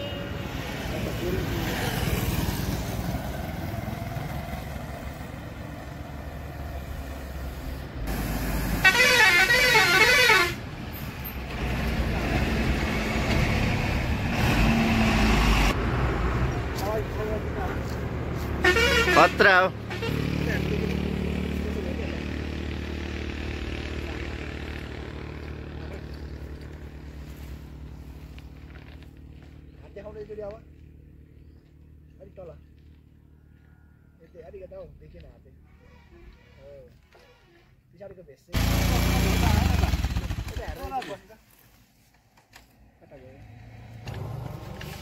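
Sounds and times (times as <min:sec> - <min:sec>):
road traffic rumble: 0:00.0 - 0:45.0
warbling vehicle horn: 0:08.8 - 0:10.6, 0:18.6 - 0:20.2
vehicle engine running: 0:20.4 - 0:34.1.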